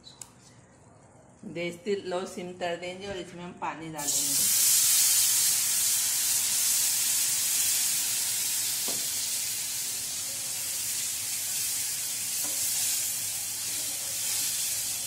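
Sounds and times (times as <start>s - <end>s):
water sizzling in frying pan: 4.0s - 15.0s.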